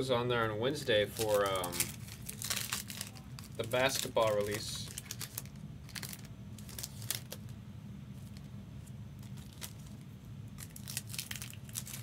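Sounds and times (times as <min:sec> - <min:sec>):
steady low hum: 0:00.0 - 0:12.0
foil wrappers crinkling and tearing: 0:00.8 - 0:07.5, 0:09.2 - 0:12.0.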